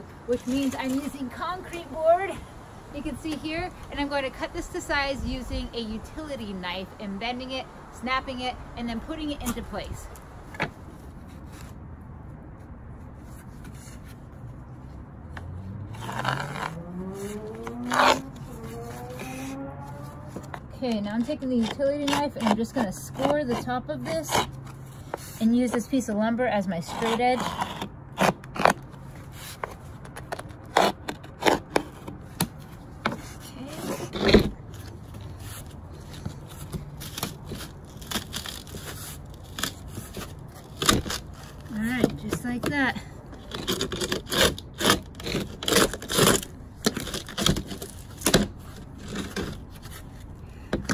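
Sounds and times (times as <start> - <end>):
scraping on cement board: 0.0 - 2.0, 15.4 - 50.9
low hum rising in pitch: 15.5 - 20.4.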